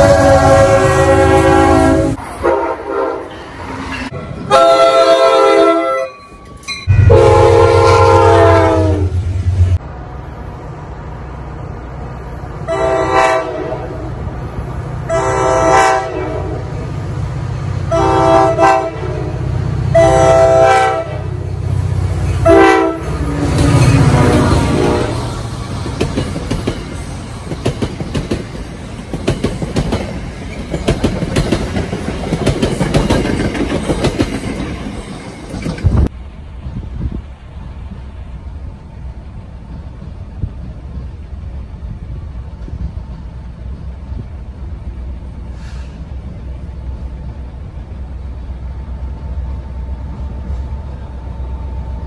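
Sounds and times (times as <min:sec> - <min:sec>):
locomotive air horn blasts: 0:00.0 - 0:03.4, 0:04.5 - 0:06.2, 0:06.9 - 0:09.6, 0:12.6 - 0:14.1, 0:15.0 - 0:16.9, 0:17.9 - 0:21.4, 0:22.4 - 0:23.2, 0:24.0 - 0:25.3
locomotive engine rumble: 0:06.4 - 0:52.0.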